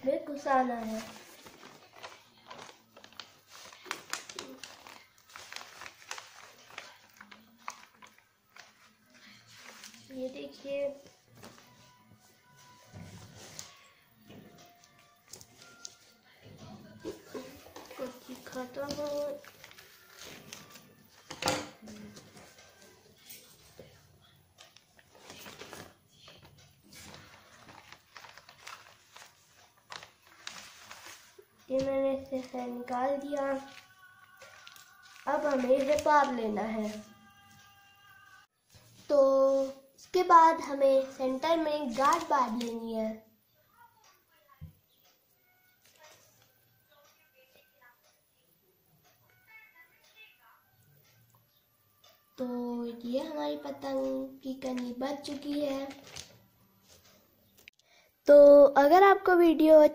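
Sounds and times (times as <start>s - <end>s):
paper crinkling and rustling: 0.3s - 16.3s, 17.0s - 24.0s, 24.6s - 37.8s, 38.7s - 43.2s, 45.8s - 46.6s, 53.3s - 57.8s.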